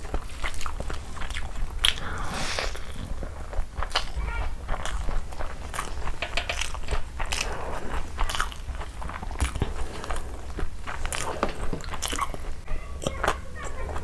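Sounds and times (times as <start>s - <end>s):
close chewing with wet mouth clicks: 0.0s - 14.0s.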